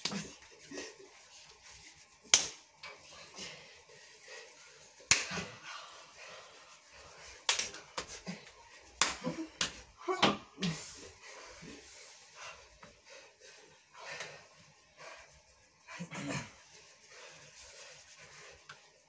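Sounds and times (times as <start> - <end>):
hand claps and slaps: 0.0 - 0.5, 2.2 - 2.9, 5.0 - 5.6, 7.4 - 10.9
person panting: 3.0 - 10.0, 10.6 - 18.7.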